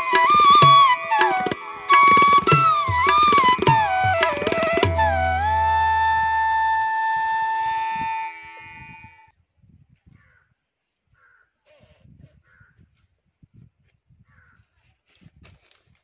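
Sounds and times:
flute over low drone: 0.0s - 9.2s.

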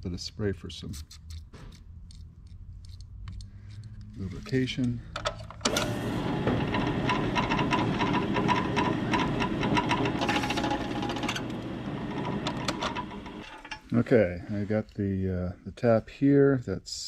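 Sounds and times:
drill press running: 5.6s - 13.8s
drill bit cutting metal: 5.7s - 13.6s.

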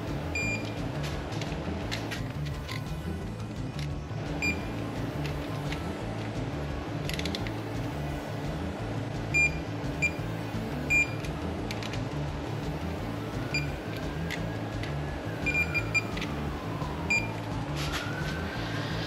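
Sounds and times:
background music with low beat: 0.0s - 19.0s
torque wrench beeping: 0.3s - 0.8s, 4.4s - 4.7s, 9.3s - 11.9s.

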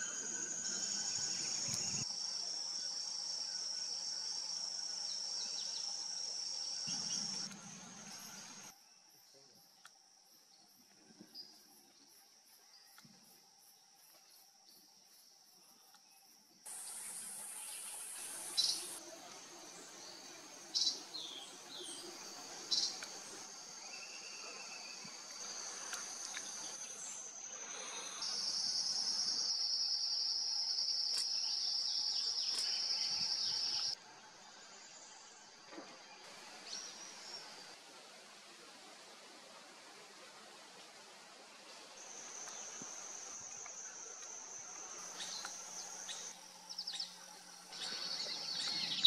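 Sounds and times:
loud high insect trill: 0.0s - 8.8s, 16.7s - 35.5s
insects trilling: 0.0s - 35.6s, 41.6s - 49.0s.

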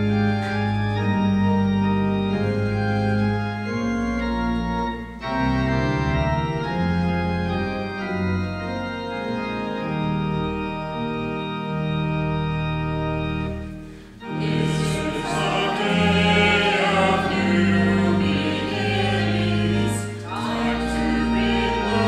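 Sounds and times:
church organ chords: 0.0s - 22.0s.

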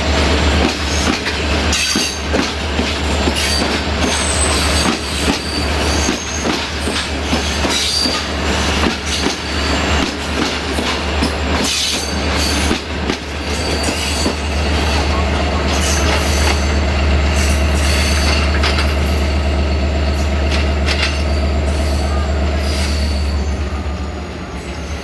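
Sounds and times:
train wheels knocking over rail joints: 0.5s - 14.5s, 15.7s - 19.2s.

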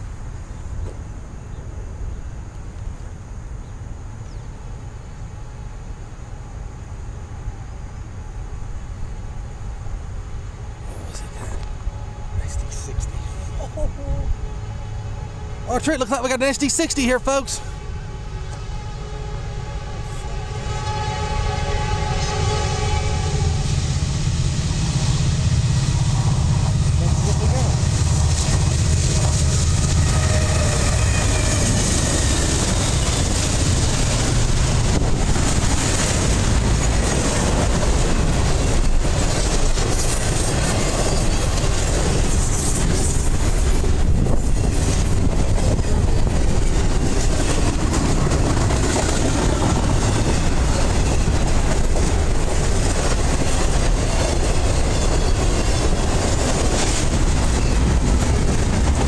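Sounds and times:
diesel locomotives rumbling: 0.0s - 59.0s
train wheels on rails: 8.3s - 59.0s.

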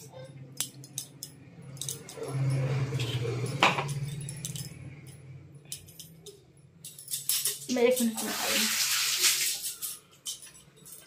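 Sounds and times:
steel utensils clinking and rattling: 0.0s - 11.0s.

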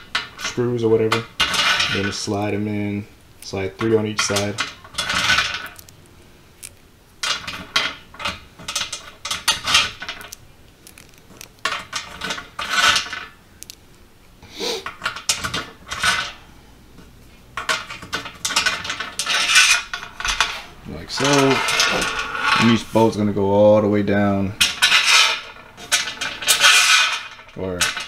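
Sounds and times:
screws rattling in metal channel: 0.1s - 2.4s, 17.6s - 22.9s, 24.6s - 28.0s.

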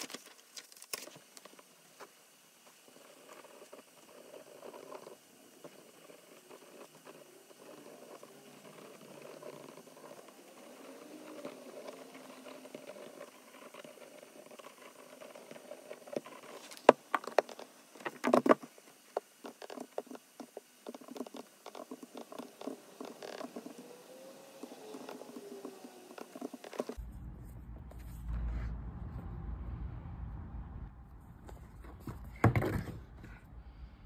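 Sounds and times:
pen scratching on paper: 2.9s - 16.8s.

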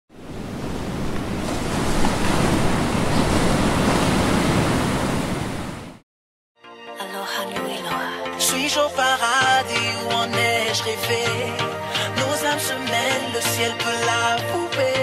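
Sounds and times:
ocean surf breaking: 0.1s - 6.0s
wind rumbling on microphone: 0.1s - 6.0s.

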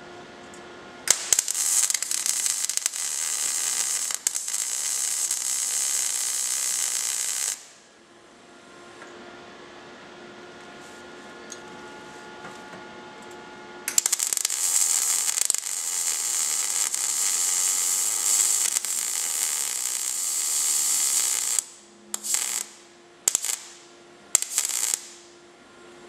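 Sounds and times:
short welder zaps: 1.1s - 7.8s, 13.9s - 25.4s
welder arc crackling: 1.1s - 7.8s, 13.9s - 25.4s.

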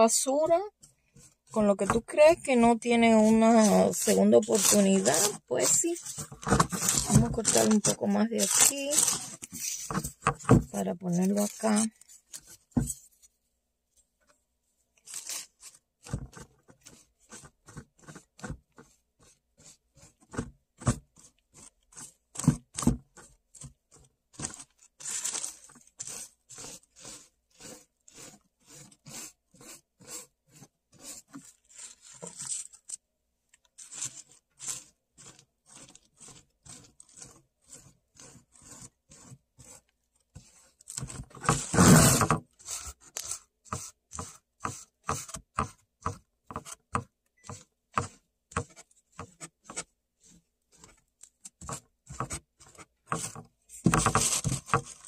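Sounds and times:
foam brush patting paper: 0.0s - 13.5s, 15.0s - 33.0s, 33.7s - 55.0s
paper rustling: 2.9s - 13.4s, 15.0s - 17.0s, 24.4s - 26.3s, 31.4s - 33.0s, 53.2s - 55.0s.

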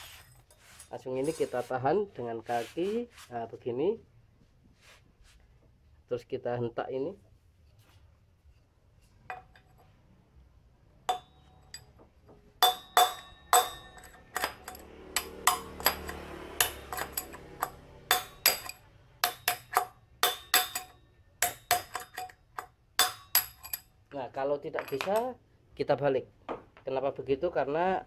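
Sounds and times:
metal rod clanking on bearing: 11.1s - 23.9s, 24.7s - 25.3s.

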